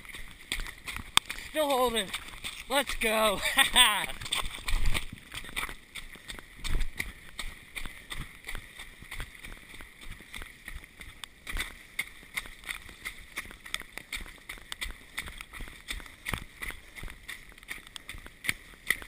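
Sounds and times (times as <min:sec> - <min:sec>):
footfalls on muddy trail: 0:00.0 - 0:19.0
handheld camera rattling: 0:04.2 - 0:05.8.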